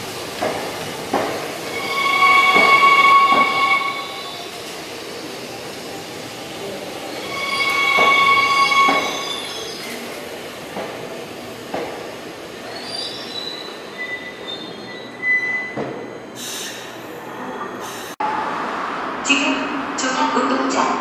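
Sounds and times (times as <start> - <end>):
train wheels squealing: 1.7 - 4.6, 7.1 - 10.0, 12.7 - 18.1.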